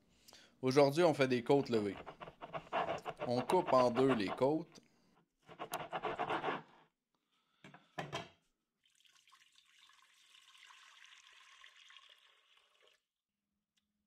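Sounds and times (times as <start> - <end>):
knife cutting on plastic board: 1.8 - 4.6, 5.5 - 6.7
water pouring into a pot: 8.8 - 13.2.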